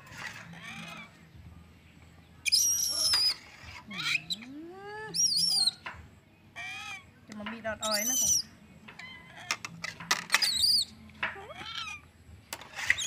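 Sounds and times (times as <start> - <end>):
high-pitched wavering calls: 2.4 - 5.8, 7.8 - 8.5.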